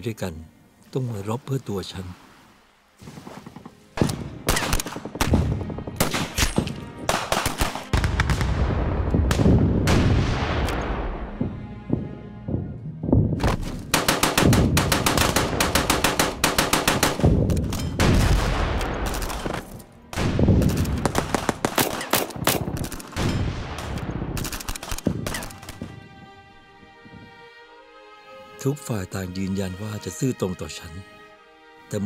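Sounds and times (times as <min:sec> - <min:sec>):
rapid rifle shots: 0:07.1 - 0:08.4, 0:13.9 - 0:17.4, 0:20.6 - 0:23.2.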